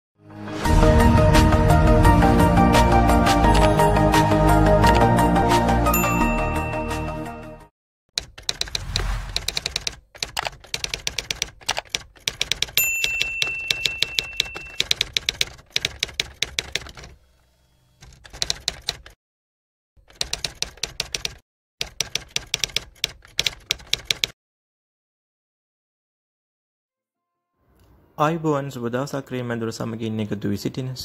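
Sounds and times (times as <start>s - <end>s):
typewriter bell ding: 6.0s - 6.9s, 12.6s - 15.1s
typewriter key clicks: 8.2s - 17.1s.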